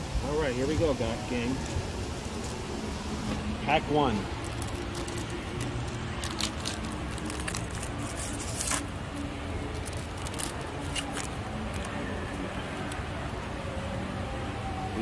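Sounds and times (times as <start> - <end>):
foil wrapper tearing and crinkling: 4.1 - 13.0.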